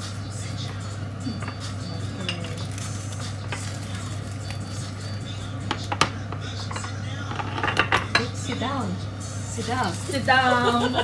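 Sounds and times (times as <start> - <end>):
steady low hum: 0.0 - 11.0
metal spoon clinking on bowls: 1.3 - 2.8, 5.7 - 8.7.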